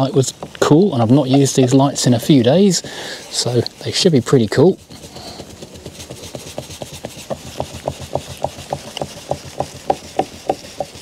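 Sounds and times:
cloth rubbing plastic lens: 3.2 - 11.0.

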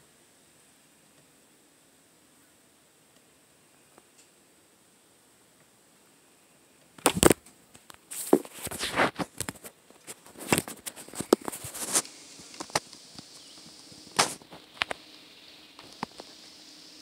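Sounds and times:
telescope rubbing and tapping phone: 8.1 - 15.0.

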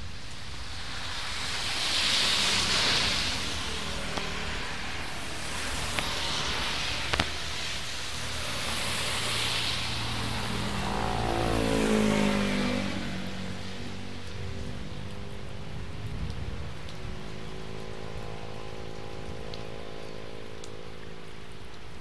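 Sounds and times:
tyres hissing through water: 0.0 - 15.7
heavy rain: 0.0 - 22.0
motorbike engine passing: 9.0 - 14.1.

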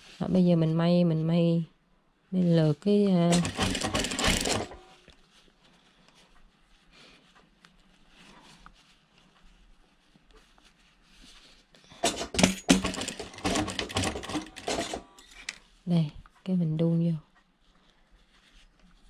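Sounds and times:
fabric rustling: 7.5 - 15.8, 17.6 - 19.0.

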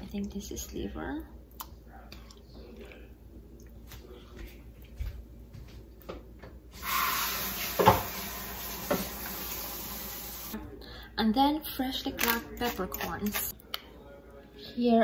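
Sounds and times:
soup simmering hiss: 6.8 - 10.6.

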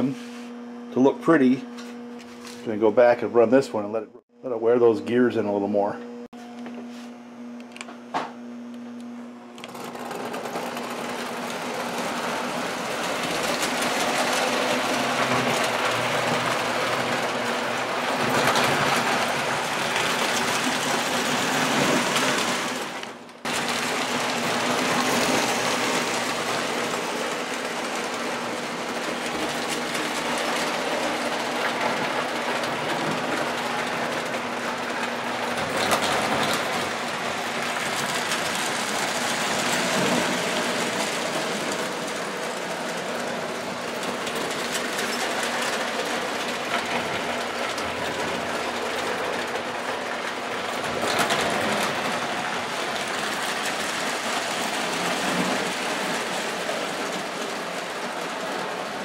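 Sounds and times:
toy train motor whirring: 9.6 - 22.8
wheels clattering on metal rails: 23.5 - 59.0.

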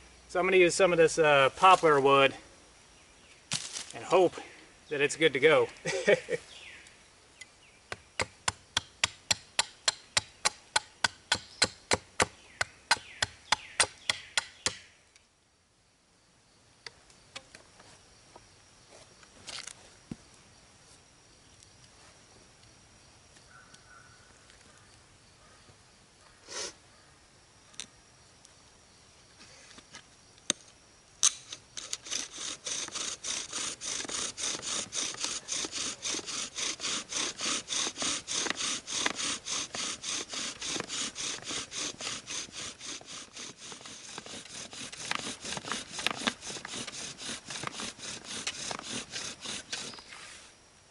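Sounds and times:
knife carving wood: 7.9 - 14.9, 31.2 - 50.2
bow drill spindle grinding: 31.5 - 50.2.

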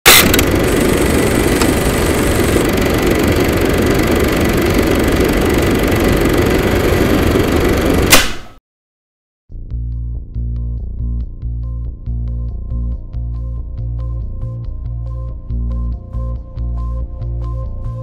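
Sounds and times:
loud steady rumbling: 0.2 - 8.4
sharp hit: 8.1 - 8.6.

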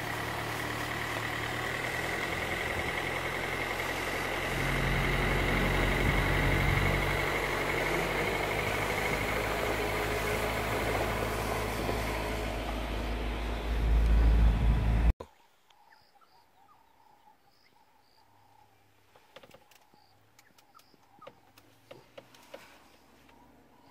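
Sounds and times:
vehicle engine running: 0.0 - 15.2.

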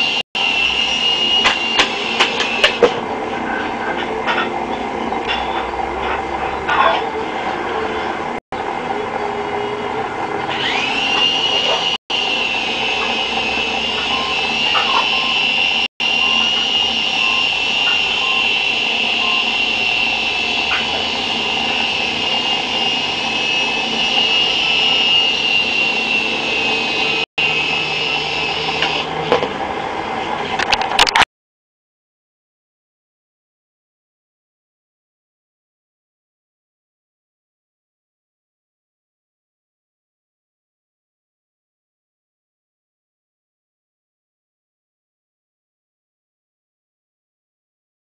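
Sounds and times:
rc helicopter motor whining: 10.3 - 29.3.

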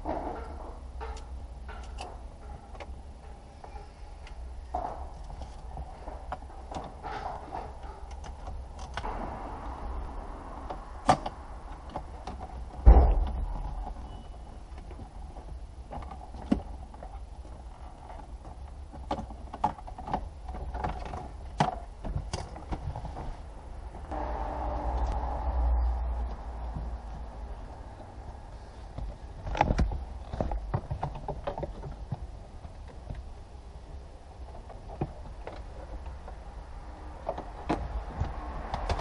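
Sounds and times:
parts clicking and knocking: 0.0 - 23.3, 26.0 - 39.0
heavy thump: 9.0 - 14.1, 24.1 - 28.4.

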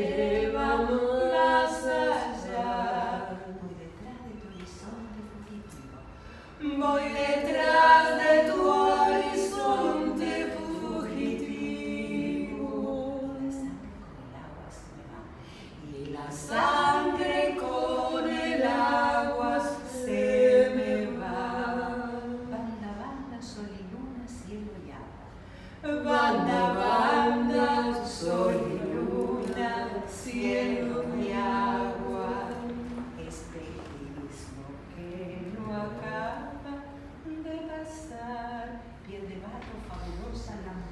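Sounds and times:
woman singing unaccompanied: 6.6 - 14.2, 25.8 - 40.1.

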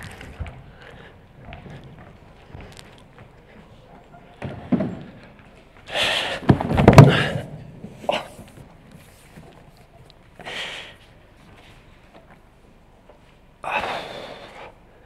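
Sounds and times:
man breathing: 0.0 - 3.9, 5.9 - 8.5, 10.4 - 11.2, 13.6 - 15.0.

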